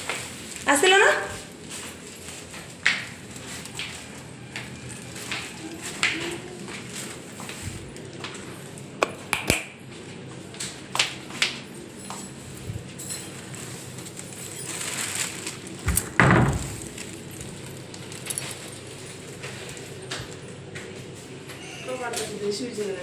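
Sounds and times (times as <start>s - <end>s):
door thump: 15.9s - 16.8s
wooden door clicks and knocks: 15.9s - 16.8s.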